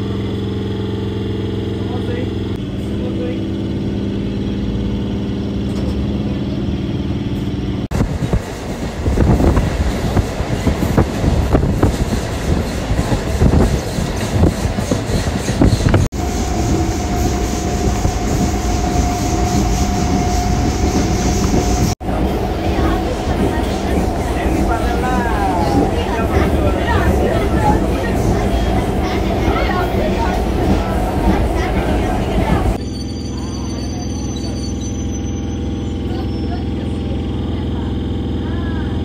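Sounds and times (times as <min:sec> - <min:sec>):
train engine hum: 0:00.0 - 0:39.0
train rattling clatter: 0:07.3 - 0:39.0.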